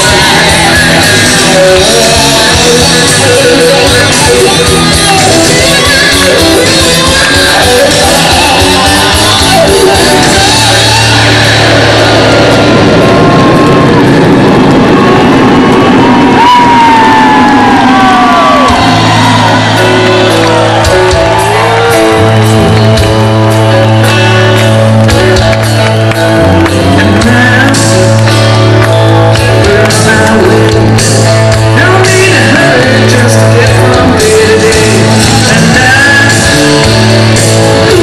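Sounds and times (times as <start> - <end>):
person singing: 0.0 - 12.3, 26.2 - 38.0
live rock band playing: 0.0 - 38.0.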